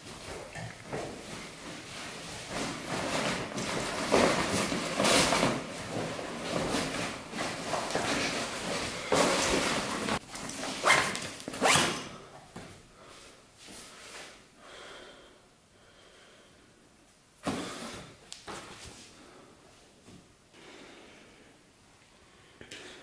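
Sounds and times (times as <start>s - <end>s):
fabric backpack rustling: 0.0s - 12.2s.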